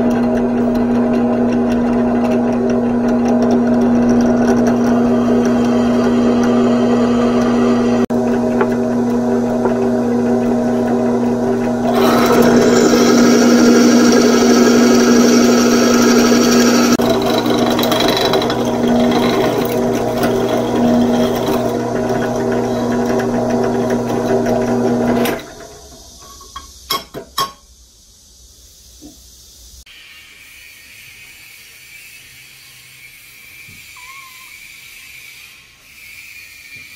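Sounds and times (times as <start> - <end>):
drill bit boring through steel: 0.0 - 25.8
drill press motor hum: 0.0 - 26.0.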